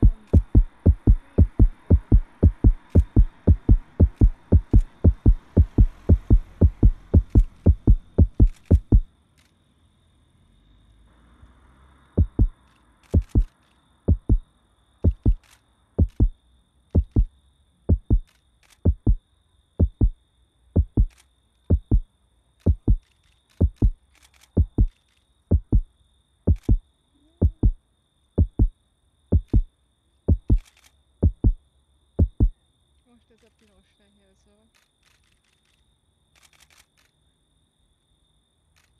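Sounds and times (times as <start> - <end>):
heartbeat thumps: 0.0 - 9.1, 12.2 - 13.5, 14.1 - 16.4, 17.0 - 17.3, 17.9 - 19.2, 19.8 - 20.2, 20.8 - 23.0, 23.6 - 24.0, 24.6 - 25.9, 26.5 - 26.8, 27.4 - 27.8, 28.4 - 29.7, 30.3 - 31.6, 32.2 - 32.6.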